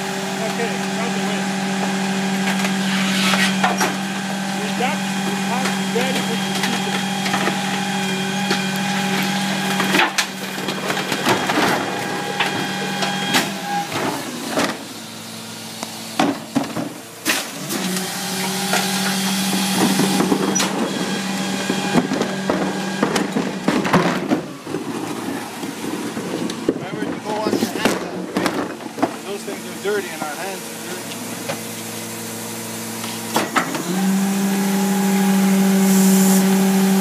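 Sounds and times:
garbage truck engine humming: 0.0 - 37.0
trash clattering into hopper: 5.6 - 14.9, 16.2 - 29.3.

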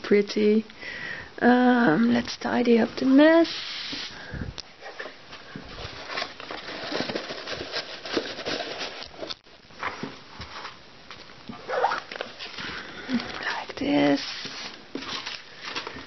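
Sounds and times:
tissue paper rustling: 4.8 - 10.8, 11.6 - 16.0.

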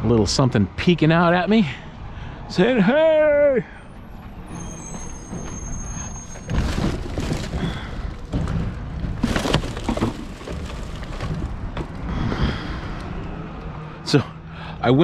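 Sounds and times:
scraping rustles: 4.5 - 12.1.

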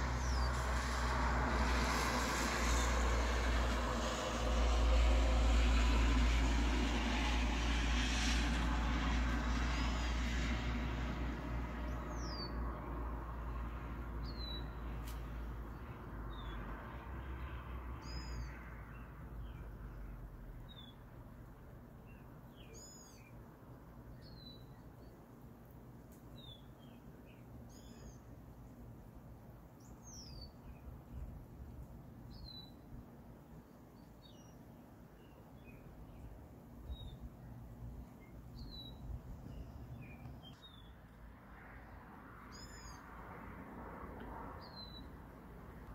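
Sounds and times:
bird chirping: 38.0 - 41.0, 42.5 - 43.0.

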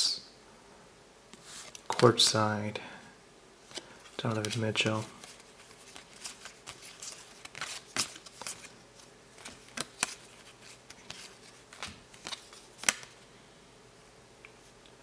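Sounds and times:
trading cards flicking and rustling: 3.7 - 13.2.

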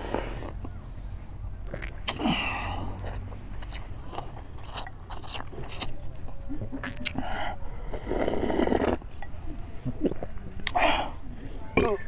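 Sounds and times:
person slurping noodles: 7.8 - 9.0.

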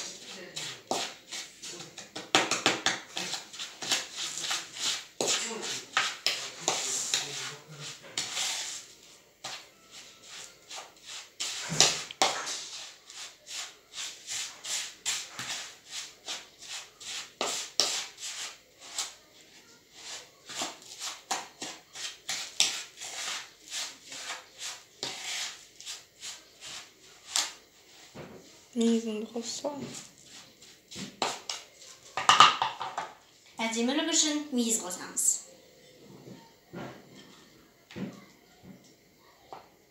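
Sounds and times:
spoon scraping in plastic bowl: 0.0 - 19.2, 20.0 - 27.6.

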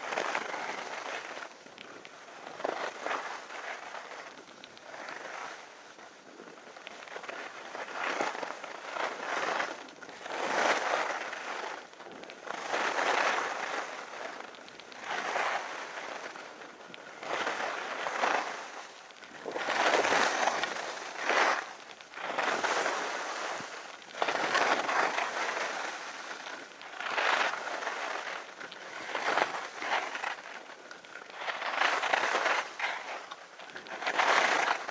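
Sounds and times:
skis scraping on snow: 0.0 - 34.9.

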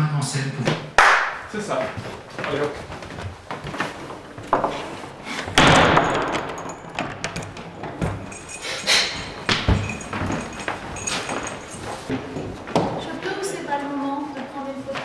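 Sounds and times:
door slamming: 5.4 - 8.3.

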